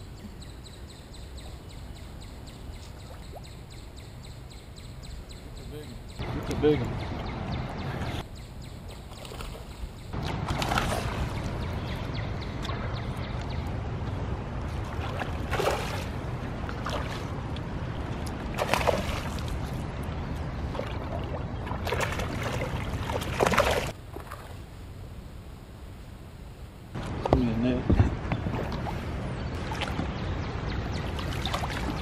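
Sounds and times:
boat engine rumble: 0:05.2 - 0:32.0
water splashing against hull: 0:09.0 - 0:12.1, 0:14.6 - 0:24.6, 0:28.0 - 0:30.3, 0:31.0 - 0:32.0.

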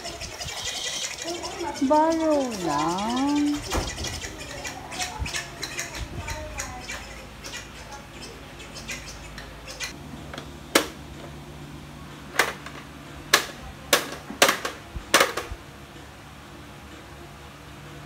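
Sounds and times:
plastic toys clacking: 0:12.4 - 0:15.5.

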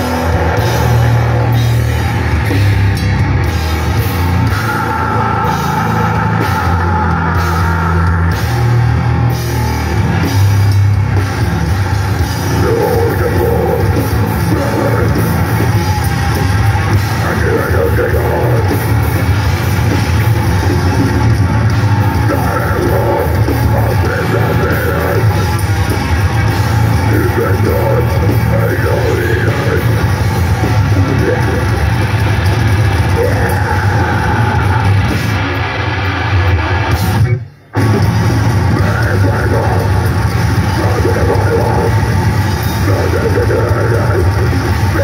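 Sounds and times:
grindcore band playing live: 0:00.0 - 0:45.0
harsh screamed vocals: 0:00.0 - 0:45.0.

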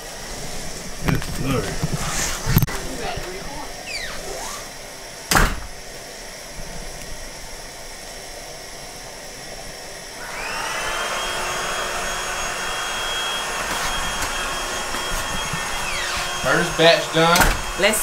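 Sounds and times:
electric motor whining: 0:00.5 - 0:05.8, 0:10.1 - 0:18.0.

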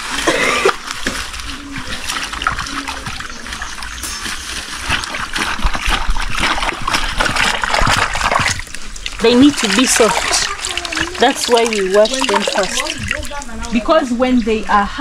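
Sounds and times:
water splashing and trickling: 0:00.0 - 0:14.8.

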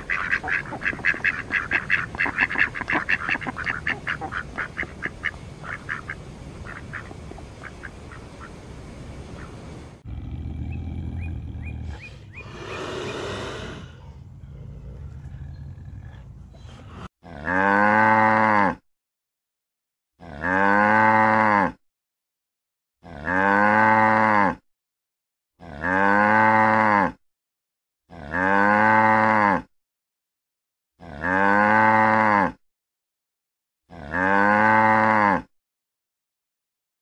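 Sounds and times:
cow mooing: 0:17.2 - 0:18.8, 0:20.2 - 0:21.8, 0:23.0 - 0:24.6, 0:25.6 - 0:27.2, 0:28.1 - 0:29.7, 0:31.0 - 0:32.6, 0:33.9 - 0:35.5.

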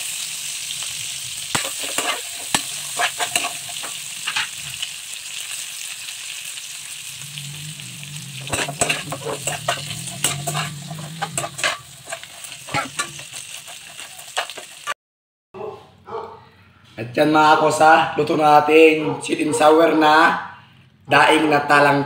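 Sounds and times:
fish sizzling in a frying pan: 0:00.0 - 0:15.0
spatula scraping a pan: 0:01.4 - 0:15.0.

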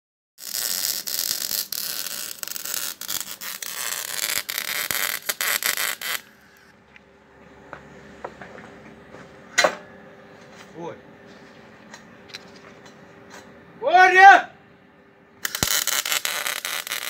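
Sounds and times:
welding arc crackling and hissing: 0:00.4 - 0:06.7, 0:15.4 - 0:17.0.

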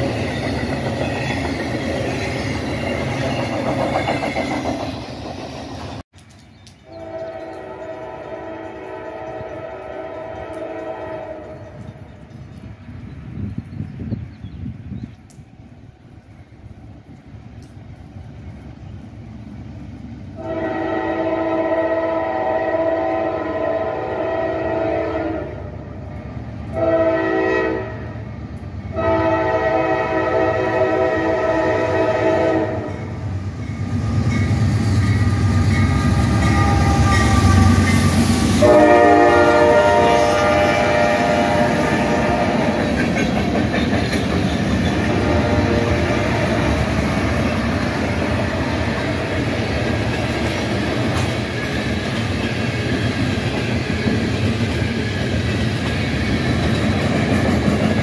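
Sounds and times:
train wheels clattering on rails: 0:00.0 - 0:06.4, 0:41.6 - 0:58.0
train air horn: 0:06.9 - 0:11.8, 0:20.4 - 0:25.8, 0:26.7 - 0:28.2, 0:28.9 - 0:33.2, 0:35.8 - 0:43.0, 0:45.0 - 0:47.1
locomotive rumble: 0:28.5 - 0:58.0.

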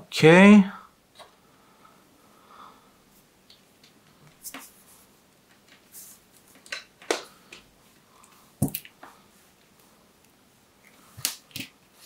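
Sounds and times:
hands handling wires clicking: 0:05.4 - 0:11.8.

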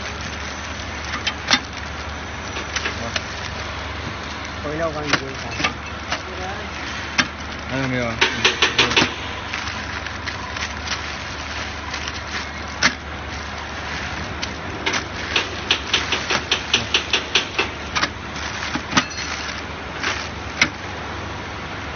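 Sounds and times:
packing machine hum: 0:00.0 - 0:21.9
mechanical clacks: 0:07.8 - 0:09.5, 0:14.8 - 0:19.6.

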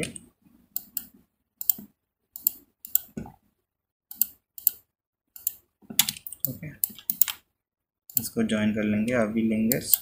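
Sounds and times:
computer mouse clicks: 0:00.8 - 0:03.2, 0:04.1 - 0:04.8, 0:05.4 - 0:07.4, 0:08.1 - 0:08.3, 0:09.1 - 0:10.0
keyboard typing: 0:04.1 - 0:04.8, 0:05.4 - 0:07.4.

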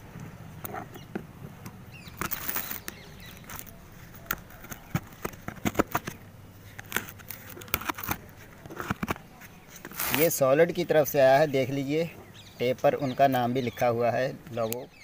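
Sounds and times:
packing tape crinkling: 0:02.0 - 0:10.4
knife scraping cardboard: 0:06.8 - 0:10.4.

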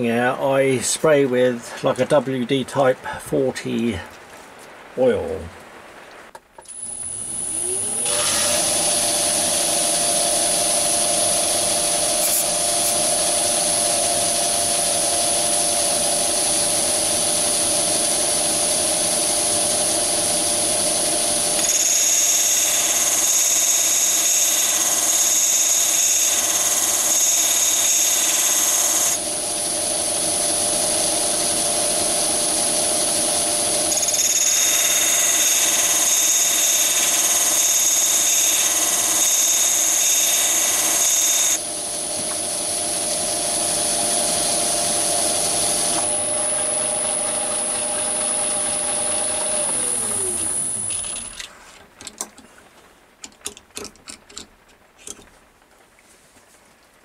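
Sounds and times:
wheel grinding drill point: 0:06.7 - 0:14.9, 0:20.6 - 0:29.2, 0:33.0 - 0:52.3
lathe running: 0:06.8 - 0:51.4.

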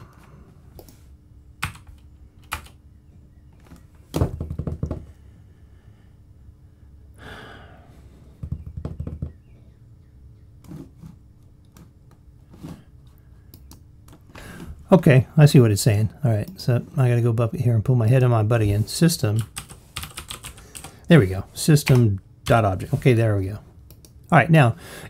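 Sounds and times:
computer keyboard typing: 0:01.6 - 0:02.8, 0:19.4 - 0:21.0.

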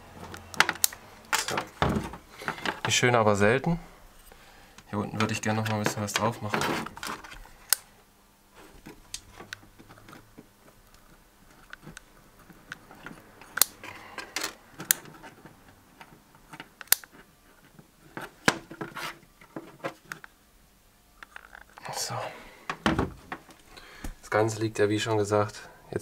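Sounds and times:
small parts clicking: 0:00.3 - 0:01.6, 0:16.5 - 0:17.1.

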